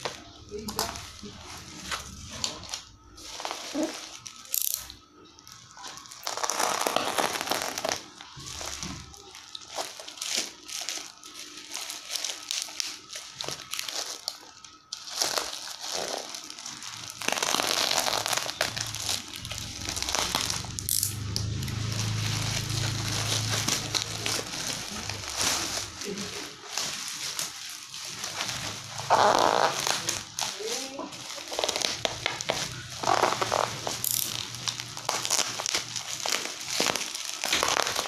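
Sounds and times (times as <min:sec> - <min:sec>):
plastic bag and tape tearing: 0:00.0 - 0:38.0.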